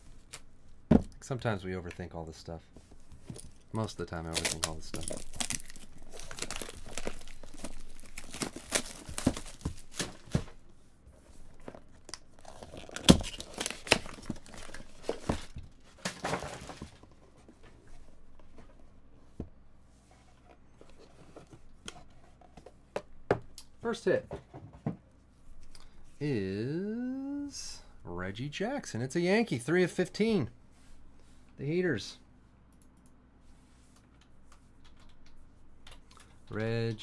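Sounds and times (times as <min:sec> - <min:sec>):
plastic shrink wrap crinkling: 0:03.8 - 0:10.2.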